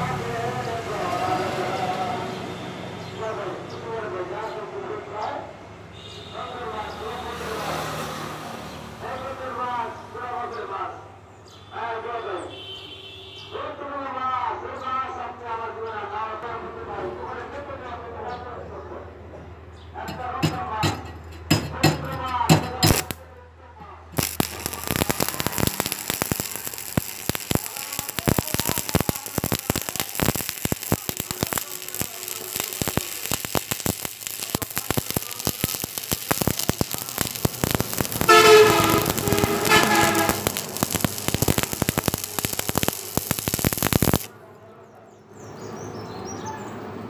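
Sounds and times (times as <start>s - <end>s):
welding arc crackling: 20.1s - 23.2s, 24.1s - 44.3s.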